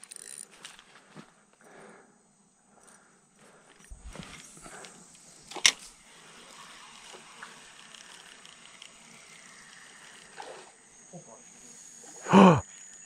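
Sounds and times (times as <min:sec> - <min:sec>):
reel hiss: 0:02.9 - 0:13.0.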